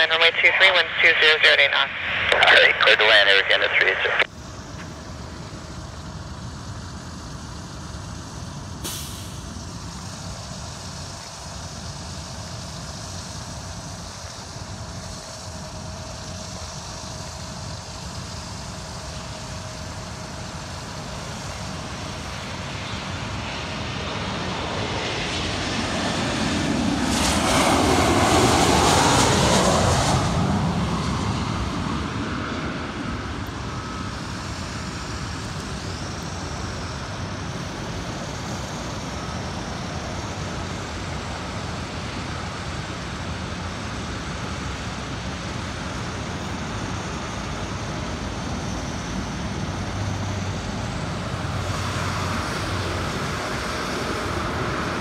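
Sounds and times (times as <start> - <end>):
road traffic hum: 0.0 - 16.1, 46.2 - 55.0
jet airliner passing overhead: 0.0 - 55.0.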